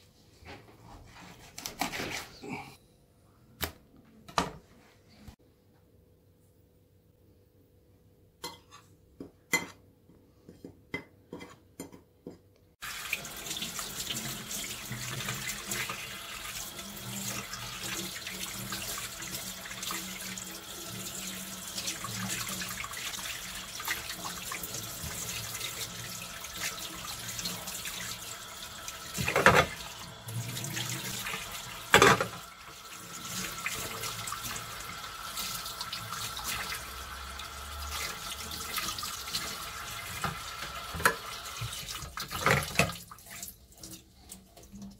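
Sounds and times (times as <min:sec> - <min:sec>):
tap running into metal sink: 0:31.9 - 0:32.4, 0:40.1 - 0:42.9.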